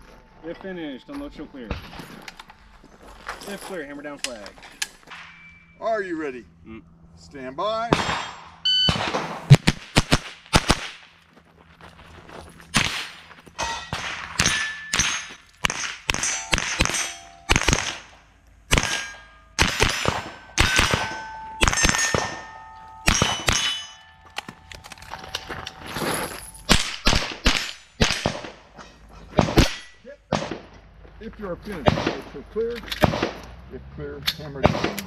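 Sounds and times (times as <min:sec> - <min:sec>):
steel targets ringing: 0:05.1 - 0:06.2, 0:13.5 - 0:26.9
rifle shots: 0:07.9 - 0:11.1, 0:13.9 - 0:23.8, 0:26.7 - 0:28.7, 0:29.4 - 0:30.8, 0:31.8 - 0:32.4, 0:33.0 - 0:33.4, 0:34.6 - 0:35.0.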